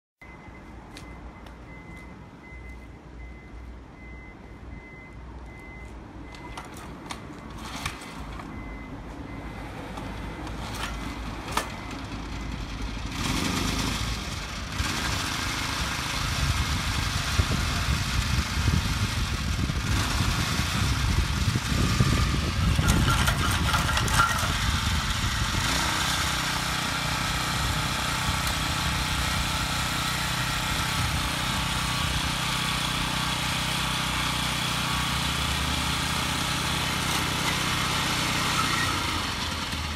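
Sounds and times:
small tiller engine running: 0:10.8 - 0:39.9.

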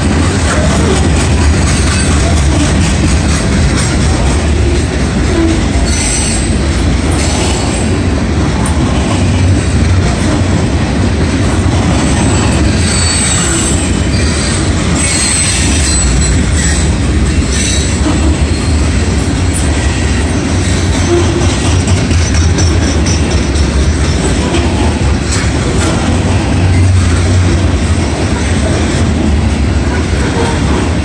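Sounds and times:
steel wheels rumbling on rail: 0:00.0 - 0:31.0
high-pitched wheel squeal: 0:12.4 - 0:19.0.

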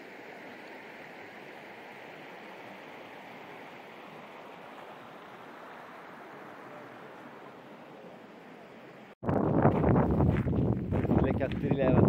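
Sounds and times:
stream water rushing: 0:00.0 - 0:09.2.

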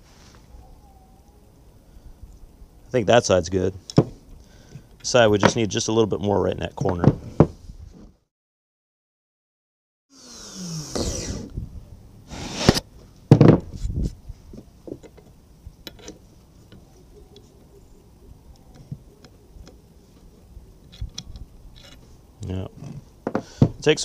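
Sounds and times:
rotary grinder grinding metal: 0:10.1 - 0:11.5.

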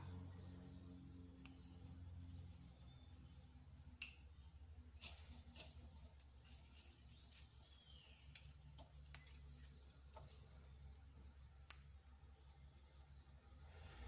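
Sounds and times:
low room hum: 0:00.0 - 0:14.0
hands handling dough clicks: 0:05.0 - 0:12.2.

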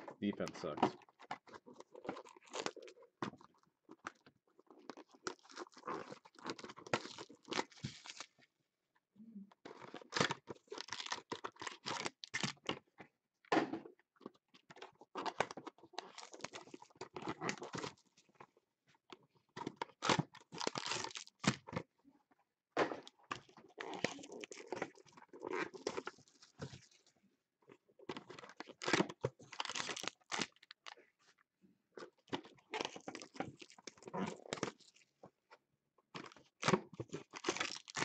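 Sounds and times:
foil packs crinkling: 0:09.8 - 0:12.7, 0:20.0 - 0:21.6, 0:23.4 - 0:26.9, 0:28.2 - 0:31.0, 0:32.8 - 0:35.0, 0:36.3 - 0:38.0
cardboard tearing: 0:28.3 - 0:30.7.

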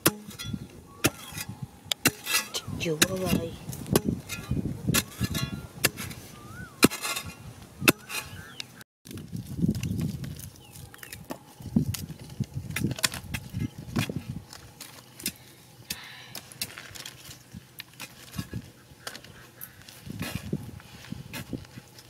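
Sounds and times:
sticks clattering on gravel: 0:09.1 - 0:20.5.

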